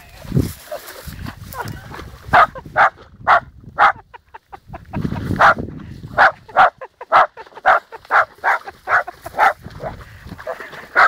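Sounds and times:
dog barking: 2.3s - 4.0s, 5.4s - 5.6s, 6.2s - 11.0s.

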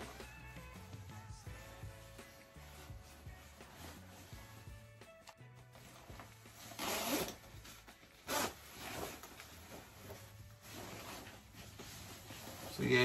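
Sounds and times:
fabric rustling: 1.5s - 5.0s, 5.7s - 13.0s
jacket zipper zipping: 6.5s - 13.0s.

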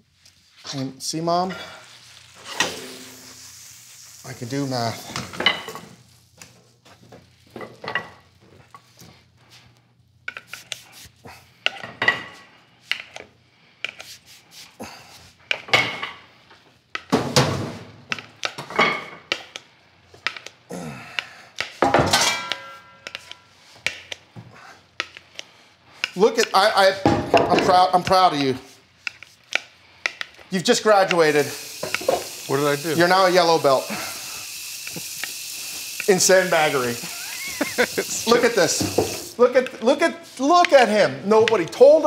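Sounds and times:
pan and utensils clattering: 4.9s - 6.0s, 17.0s - 19.6s, 21.8s - 24.1s.

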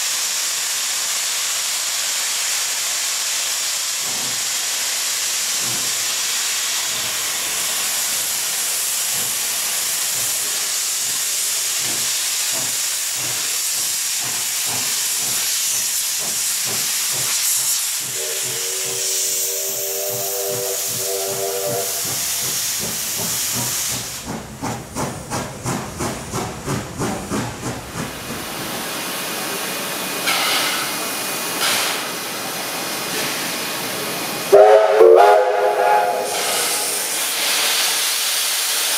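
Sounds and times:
steam hissing: 0.0s - 38.9s
steam locomotive exhaust chuffs: 0.1s - 38.9s
multi-tone steam whistle: 18.0s - 22.4s, 34.5s - 37.2s.

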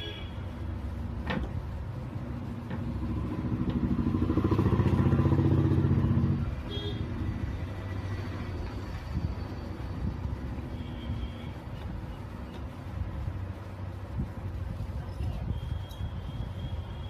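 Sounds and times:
motorcycle engine running: 2.9s - 6.8s.

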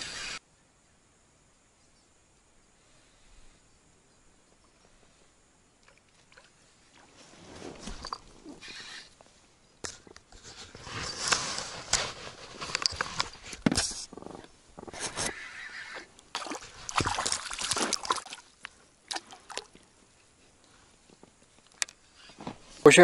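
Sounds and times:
clothing rustling on microphone: 6.9s - 9.4s, 10.3s - 15.4s, 20.0s - 22.9s.

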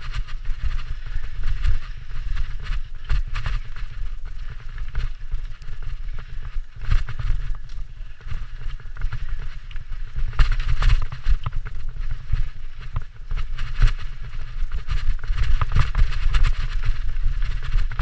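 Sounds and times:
bike rattling over bumps: 0.0s - 18.0s
bike tyres on dirt and leaves: 0.0s - 18.0s
wind rumble on microphone: 0.0s - 18.0s.

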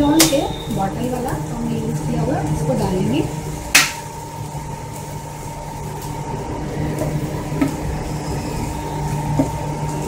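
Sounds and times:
low mechanical hum: 0.0s - 10.0s.

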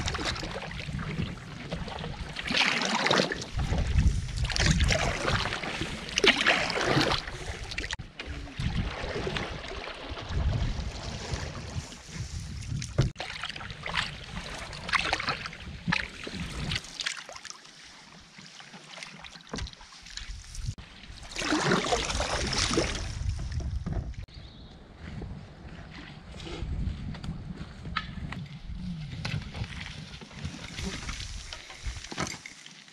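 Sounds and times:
wind rumbling on microphone: 0.0s - 2.6s, 3.3s - 17.0s, 19.6s - 32.2s
paddle strokes splashing: 0.0s - 23.9s.

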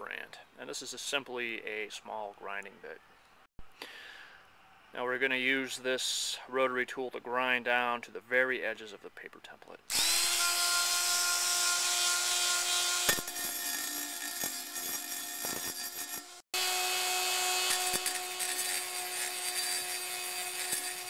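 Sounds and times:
rotary tool grinding metal: 9.9s - 21.0s.

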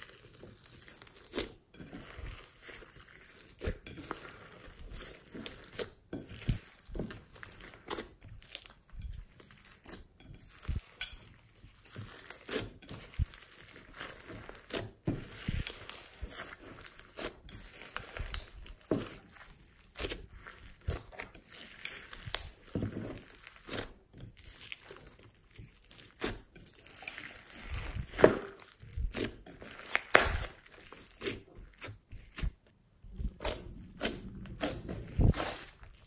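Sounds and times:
crackles and clicks of beads: 0.0s - 36.0s
hands squelching slime: 0.0s - 36.0s.

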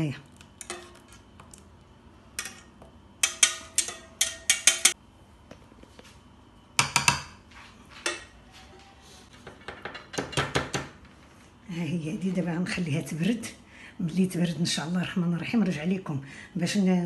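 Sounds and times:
metal utensils clinking on pans: 2.4s - 5.0s.

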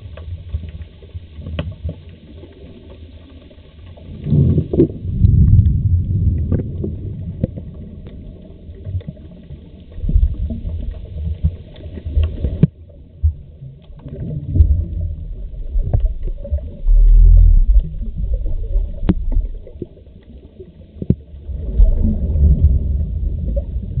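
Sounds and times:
underwater regulator bubbles: 0.0s - 24.0s
sharp underwater clicks: 10.8s - 12.8s.

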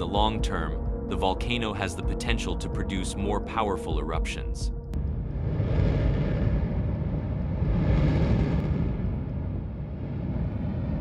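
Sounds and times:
volcanic eruption rumble: 5.0s - 11.0s.

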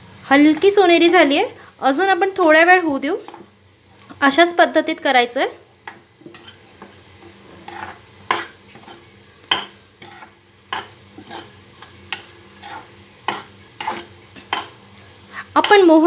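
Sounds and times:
metal spatula scraping pan: 5.9s - 14.8s.

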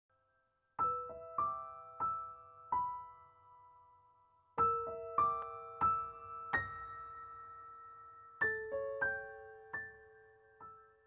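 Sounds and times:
slow piano notes: 4.6s - 11.0s.

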